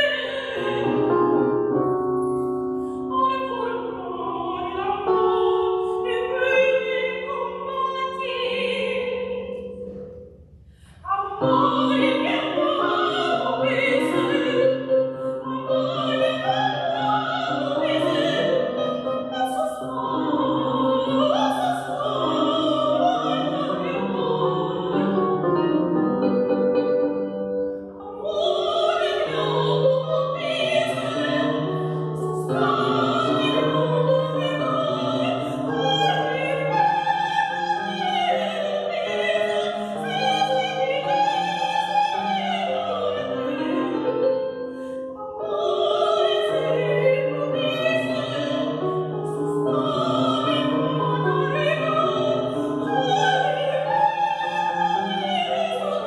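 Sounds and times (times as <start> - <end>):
woman singing operatically: 0.0 - 1.0, 3.1 - 9.4, 11.1 - 14.8, 15.4 - 25.2, 28.0 - 31.6, 32.2 - 44.0, 45.4 - 48.7, 49.7 - 56.0
electric keyboard: 22.0 - 28.4.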